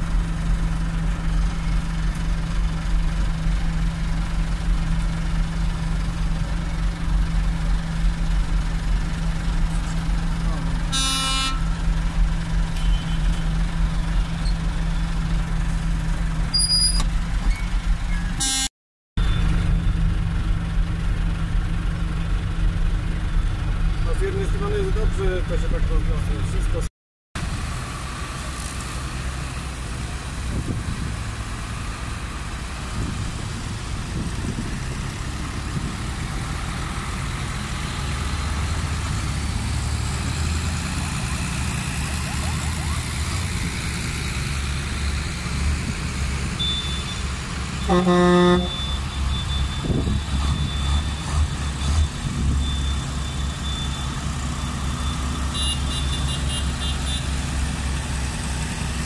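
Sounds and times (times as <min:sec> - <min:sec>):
tractor diesel engines rumbling: 0:00.0 - 0:59.0
vehicle horn: 0:10.9 - 0:11.8, 0:12.8 - 0:13.4, 0:18.4 - 0:18.7, 0:46.6 - 0:47.2, 0:47.8 - 0:49.0, 0:55.5 - 0:57.3.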